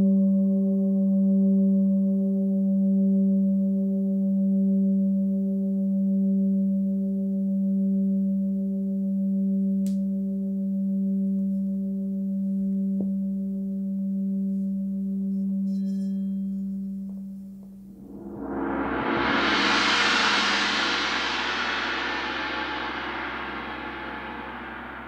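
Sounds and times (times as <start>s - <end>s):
singing bowl ringing: 15.3s - 17.1s.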